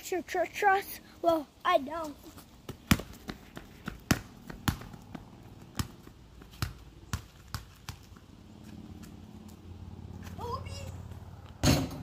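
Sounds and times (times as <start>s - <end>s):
ball bouncing on concrete: 2.6s - 9.6s.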